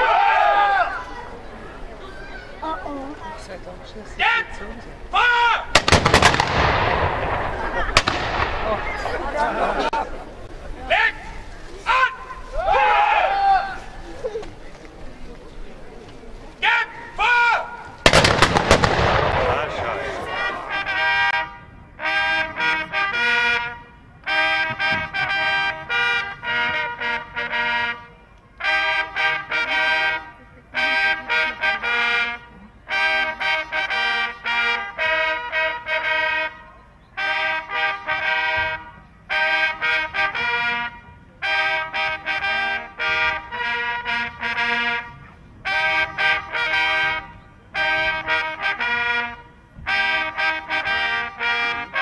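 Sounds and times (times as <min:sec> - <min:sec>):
trumpet fanfare: 0:05.7 - 0:09.2, 0:18.0 - 0:52.0.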